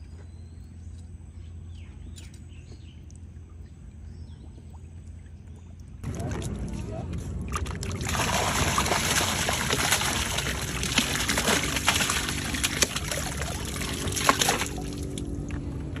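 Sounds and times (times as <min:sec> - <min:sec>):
fish splashing: 0:07.4 - 0:15.6
water pouring into river: 0:07.5 - 0:15.3.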